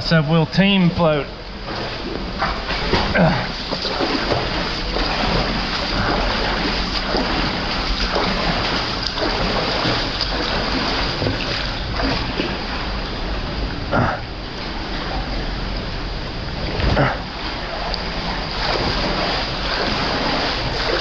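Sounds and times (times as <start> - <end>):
floodwater rushing: 0.0 - 13.3, 13.9 - 21.0
people splashing in water: 1.6 - 12.7, 16.9 - 21.0.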